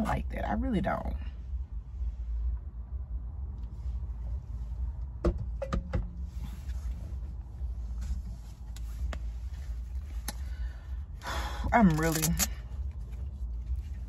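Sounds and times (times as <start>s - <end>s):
low steady rumble: 0.0s - 14.0s.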